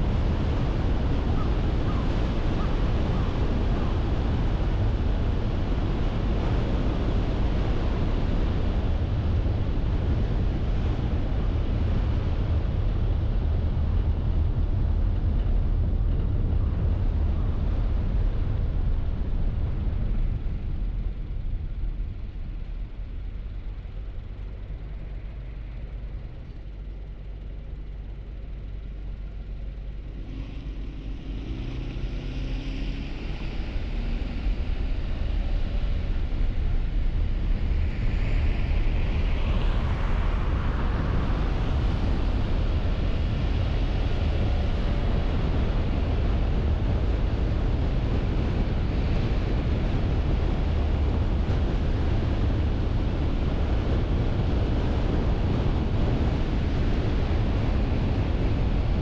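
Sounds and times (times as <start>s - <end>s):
road noise: 29.3s - 59.0s
car engine accelerating: 30.2s - 35.4s.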